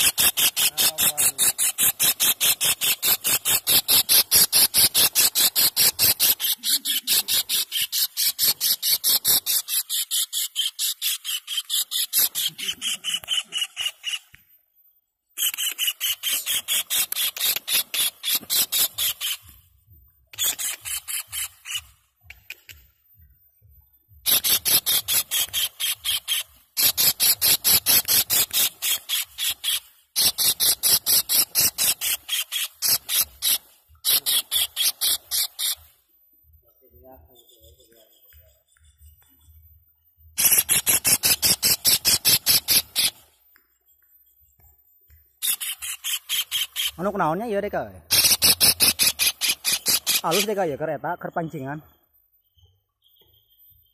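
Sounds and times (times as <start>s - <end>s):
kingfishers calling shrill notes: 0.0s - 14.4s, 15.4s - 19.7s, 20.3s - 22.7s, 24.2s - 36.0s, 40.4s - 43.4s, 45.4s - 51.8s.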